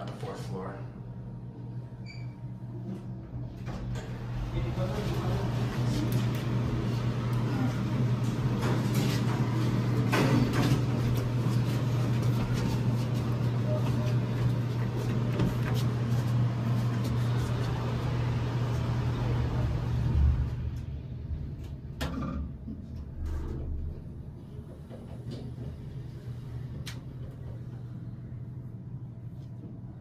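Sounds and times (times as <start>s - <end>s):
low hum: 0.0s - 30.0s
elevator doors closing with thud: 3.4s - 5.8s, 7.9s - 11.4s.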